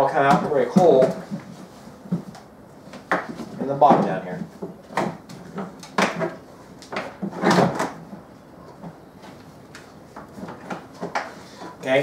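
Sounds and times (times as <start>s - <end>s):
plastic tote knocking and rattling: 0.0s - 2.4s.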